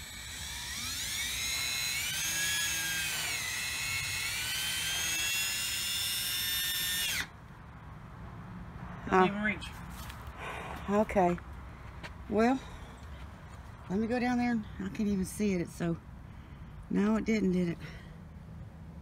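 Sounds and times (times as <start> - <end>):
cordless drill motor whine: 0.0 - 7.3.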